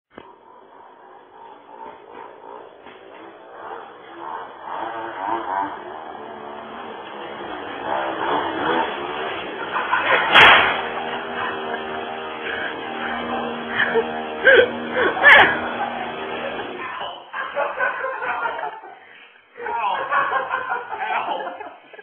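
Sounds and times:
small scooter engine revving: 0.1 - 18.6
scooter crash: 1.7 - 16.9.

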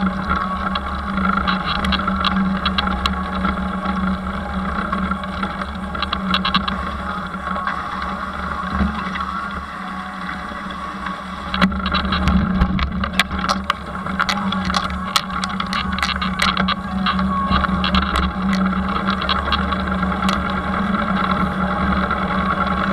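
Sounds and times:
bike tyres humming on dirt: 0.0 - 22.9
bike rattling and knocking: 11.5 - 22.1.

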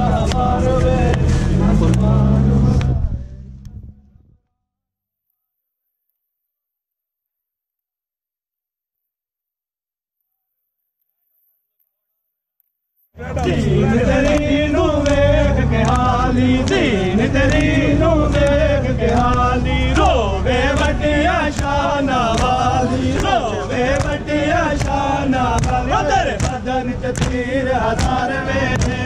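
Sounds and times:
men chanting in unison: 0.0 - 3.5, 13.2 - 29.0
hands slapping chests: 0.2 - 2.1, 13.4 - 20.1, 20.7 - 29.0.

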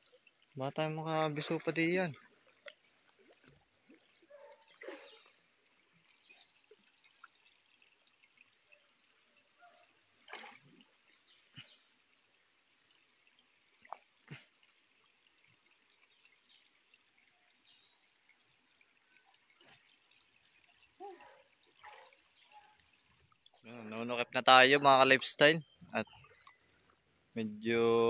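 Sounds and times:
soft water splashes: 0.0 - 28.0
faint bird chirps: 4.3 - 6.8.

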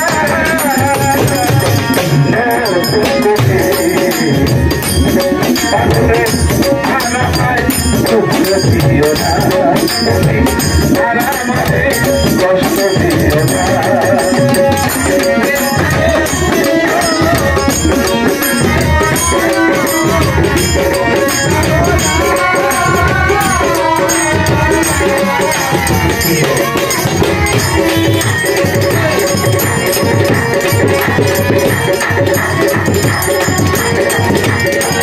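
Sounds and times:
harmonium: 0.0 - 35.0
man singing: 0.0 - 35.0
percussion struck with sticks: 0.0 - 35.0.

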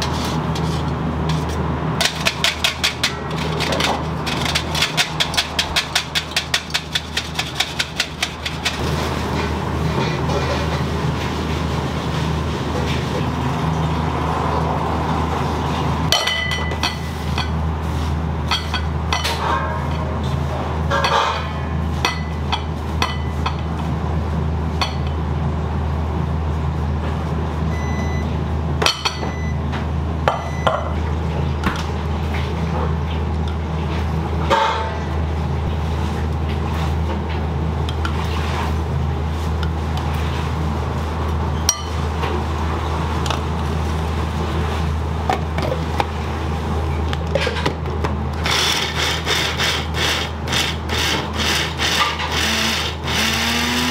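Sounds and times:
constant low hum: 0.0 - 53.8.

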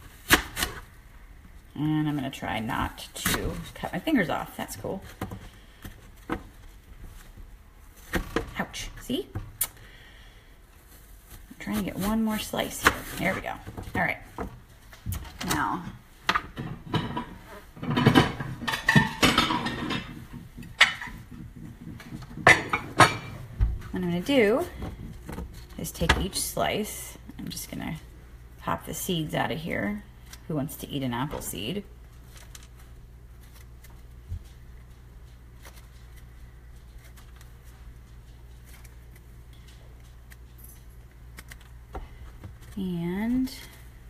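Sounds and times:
steady low hum: 0.0 - 44.0
dishes clattering: 16.5 - 23.4.

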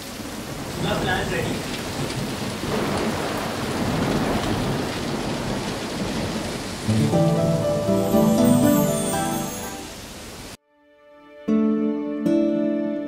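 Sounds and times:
rain falling steadily: 0.0 - 10.6
music: 6.9 - 10.0, 10.6 - 13.0.

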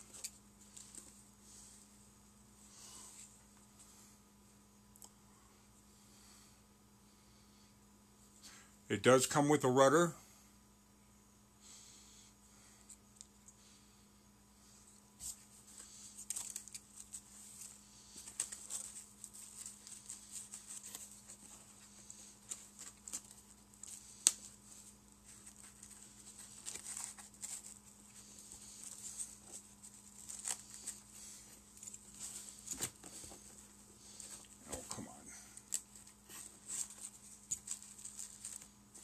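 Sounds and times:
foam packing rustling: 16.2 - 39.0.

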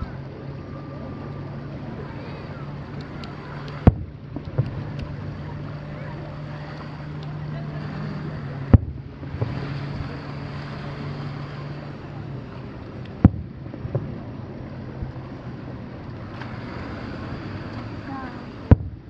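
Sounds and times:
low background hum: 0.0 - 19.0
distant firework bursts: 3.3 - 5.1, 13.1 - 14.2, 18.6 - 19.0.

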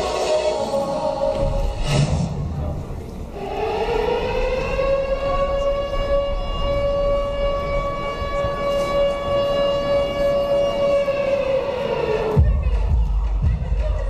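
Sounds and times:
air-raid siren in music: 3.3 - 13.8.

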